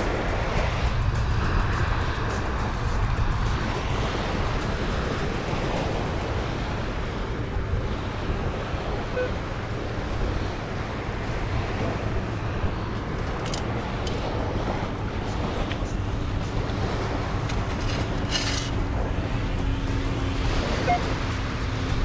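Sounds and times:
ocean surf on a beach: 0.0 - 22.0
wind rumbling on microphone: 0.0 - 22.0.

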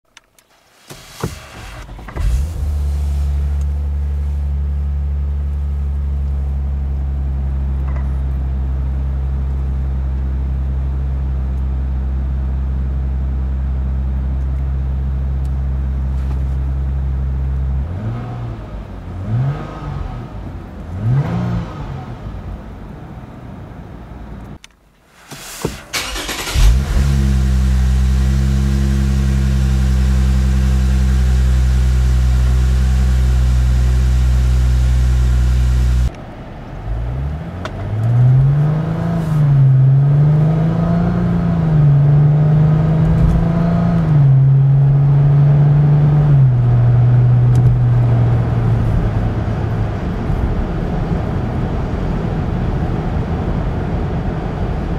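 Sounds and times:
car engine starting: 0.2 - 54.9
car engine idling: 0.4 - 17.9, 25.2 - 38.0
engine revving: 17.8 - 22.4, 25.9 - 36.1, 37.0 - 50.2.

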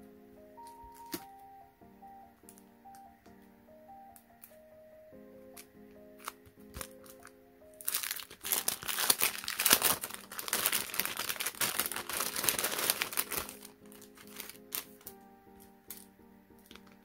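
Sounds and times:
soft piano music: 0.0 - 17.0
packaging crinkling: 6.2 - 17.0.

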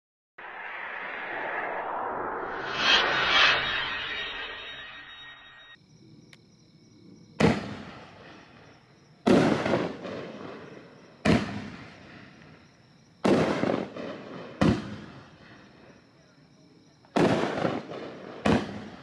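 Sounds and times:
fireworks booming: 7.4 - 16.0, 17.1 - 19.0.

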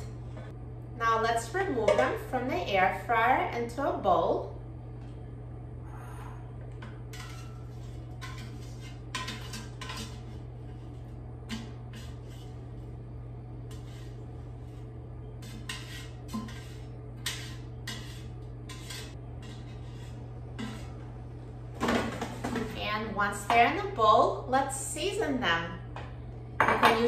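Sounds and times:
spatula scraping basket: 7.1 - 12.9, 13.7 - 21.1.

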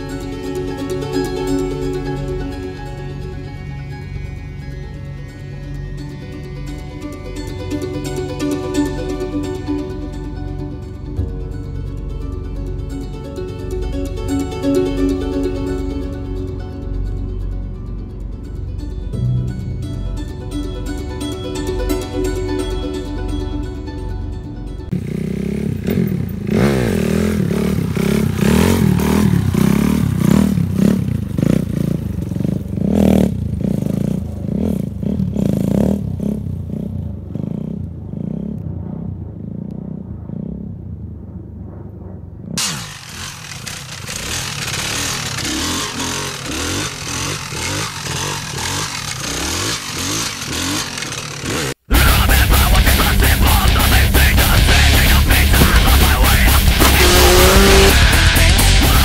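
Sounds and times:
truck engine revving: 0.0 - 41.3, 42.4 - 59.0.

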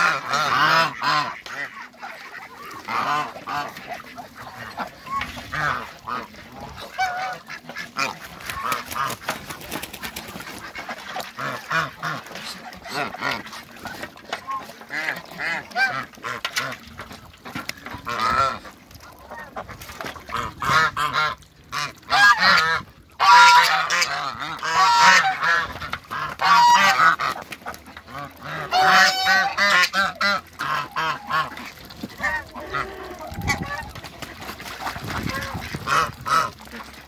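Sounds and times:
geese honking: 0.0 - 9.2, 17.9 - 27.4, 28.0 - 36.9.

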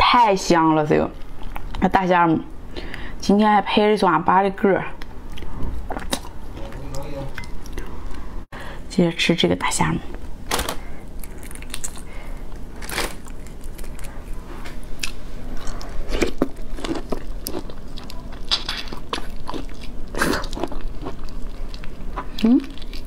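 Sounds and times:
prawn shell crunching and chewing: 11.0 - 23.0.

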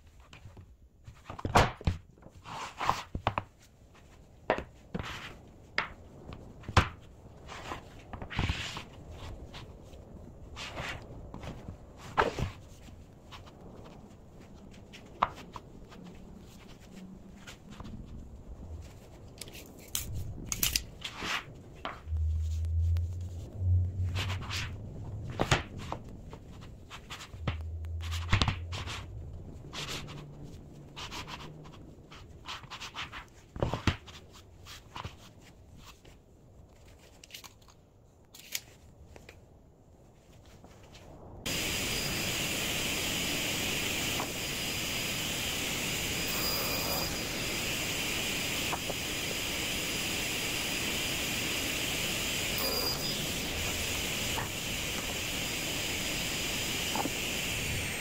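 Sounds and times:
boards sliding rumble: 21.0 - 31.0.

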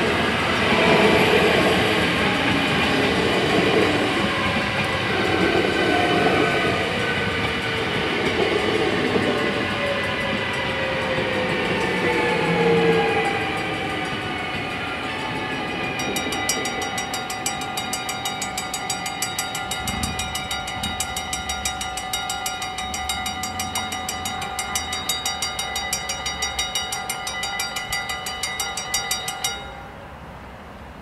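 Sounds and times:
train departing: 0.0 - 31.0
level crossing bells ringing: 7.7 - 30.1.

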